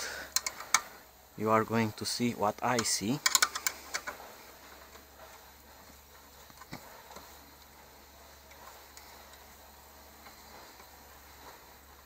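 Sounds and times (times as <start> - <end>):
wrench clicking on screw: 0.3 - 0.8, 2.8 - 4.1.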